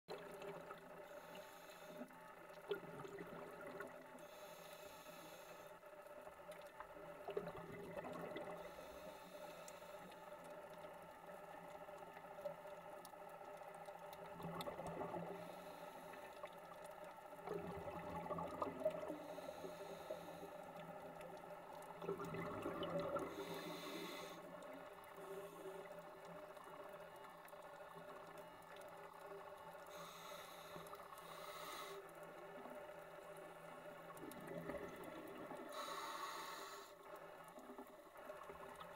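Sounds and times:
regulator inhale hiss: 0:01.0 - 0:02.2, 0:04.1 - 0:05.9, 0:08.5 - 0:10.4, 0:15.1 - 0:16.5, 0:19.0 - 0:21.0, 0:23.1 - 0:26.0, 0:29.8 - 0:33.9, 0:35.6 - 0:37.8
exhaled bubbles underwater: 0:02.5 - 0:04.2, 0:06.5 - 0:08.8, 0:14.2 - 0:15.7, 0:17.3 - 0:20.2, 0:21.0 - 0:28.0, 0:34.0 - 0:36.0.

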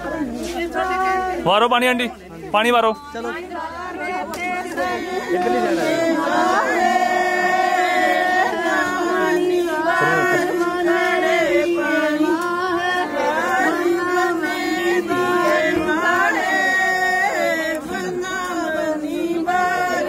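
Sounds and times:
person singing ornamented melody: 0:04.0 - 0:20.0.

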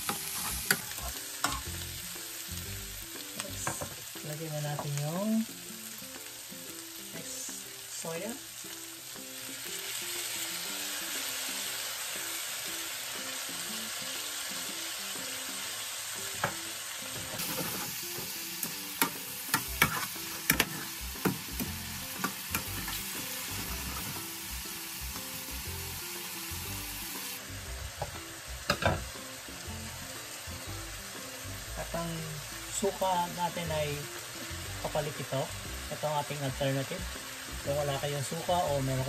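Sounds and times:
pork sizzling in a frying pan: 0:00.0 - 0:39.0
utensil scraping a pan: 0:19.5 - 0:21.0.

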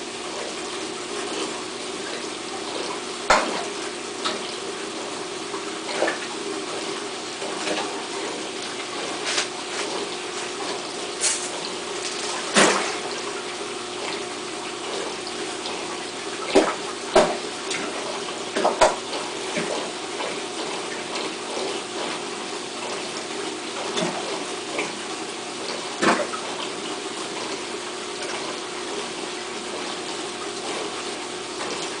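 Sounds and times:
aquarium filter hum: 0:00.0 - 0:32.0
fish splashing at surface: 0:07.4 - 0:20.4.

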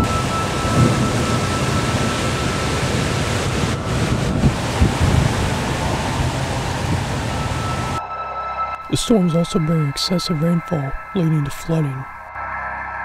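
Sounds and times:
gusty wind through trees: 0:00.0 - 0:08.0.

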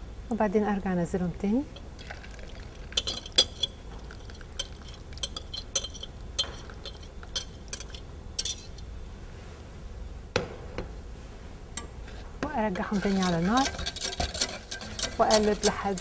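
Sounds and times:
whisk clinking against glass and metal: 0:02.9 - 0:08.8, 0:12.7 - 0:16.0.

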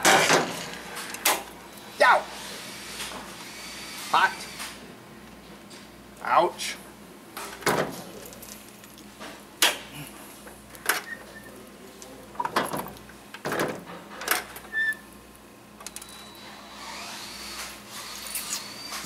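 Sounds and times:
hard knocks and clatter: 0:00.0 - 0:01.4, 0:07.5 - 0:08.0, 0:12.5 - 0:14.4.

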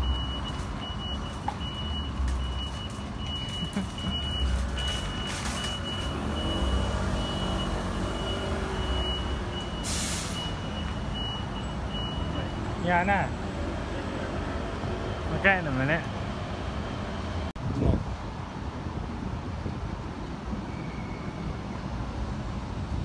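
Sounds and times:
reversing alarm beeping: 0:00.0 - 0:12.7
diesel bus engines running: 0:00.0 - 0:17.6
bus engine revving: 0:03.7 - 0:10.6
air hiss: 0:09.8 - 0:10.5.

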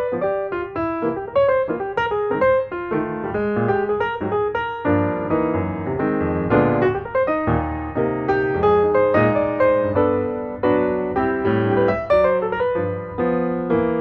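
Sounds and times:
solo piano music: 0:00.0 - 0:14.0.

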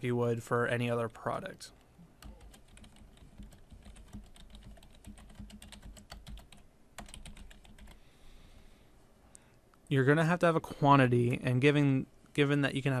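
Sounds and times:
typing on computer keyboard: 0:02.2 - 0:08.0.

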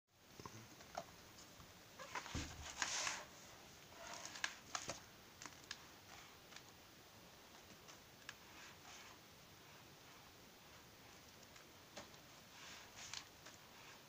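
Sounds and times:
book pages turning: 0:02.0 - 0:06.7, 0:11.3 - 0:13.7.

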